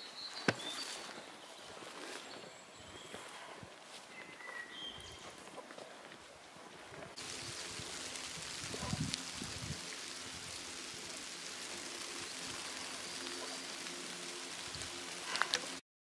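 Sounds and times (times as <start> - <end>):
water hissing: 7.2 - 15.8.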